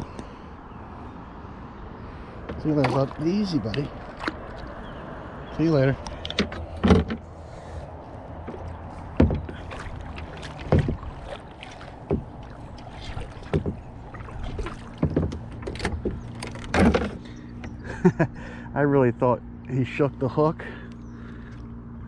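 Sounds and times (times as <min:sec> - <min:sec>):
knocks in plastic kayak: 0:06.2 - 0:07.2, 0:08.4 - 0:17.8.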